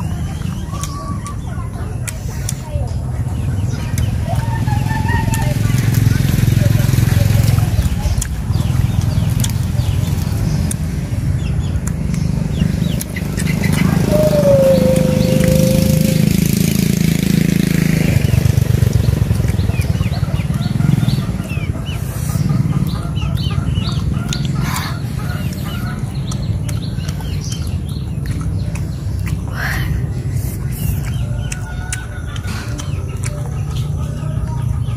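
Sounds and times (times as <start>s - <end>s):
small birds chirping: 0.0s - 34.9s
low engine drone: 10.7s - 19.8s.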